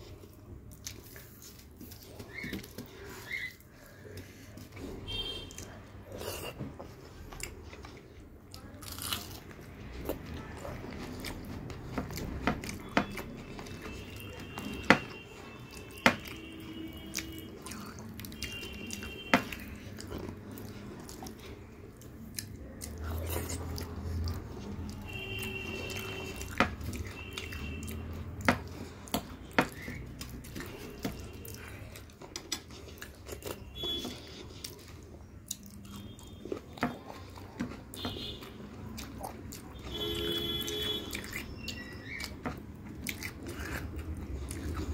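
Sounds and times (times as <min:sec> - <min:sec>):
chewing and lip smacks: 0:17.0 - 0:40.0, 0:40.8 - 0:44.9.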